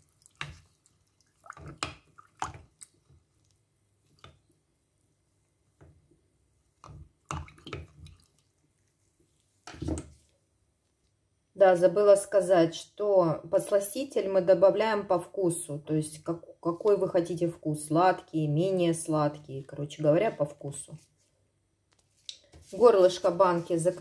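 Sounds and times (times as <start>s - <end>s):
water sloshing in glass jar: 0.0s - 3.2s, 6.8s - 8.6s.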